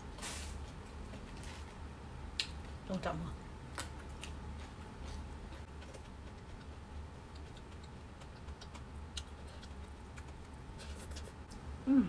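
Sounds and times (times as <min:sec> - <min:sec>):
steady low hum: 0:00.0 - 0:12.0
chewing clicks: 0:07.3 - 0:10.6.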